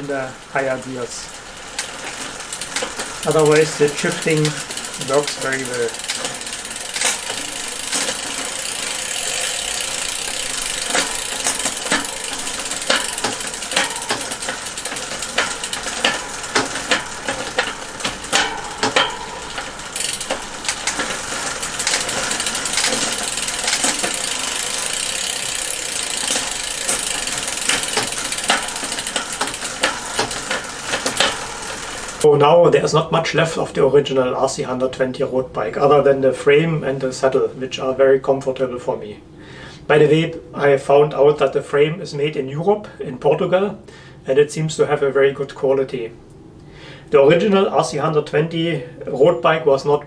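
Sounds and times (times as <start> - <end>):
bicycle chain running: 0.0 - 32.3
gear shifting clicks: 1.7 - 32.3.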